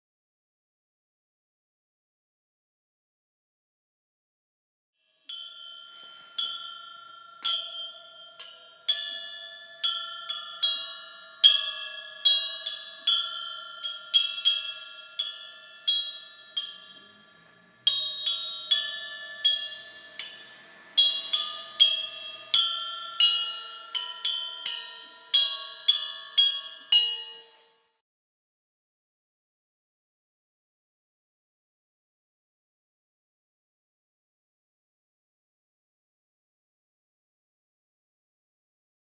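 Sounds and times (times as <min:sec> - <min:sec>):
bell-like struck notes: 0:05.0 - 0:28.0
low held tone: 0:05.2 - 0:27.9.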